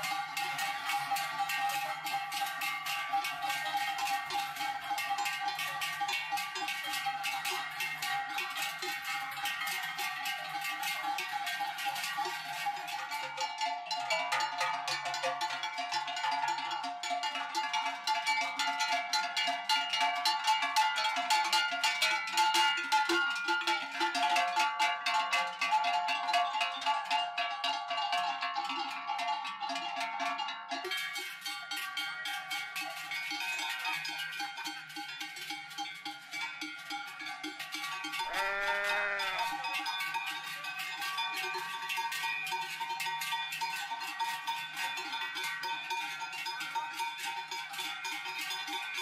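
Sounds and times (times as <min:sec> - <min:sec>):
cowbells clanging: 0:00.0 - 0:49.0.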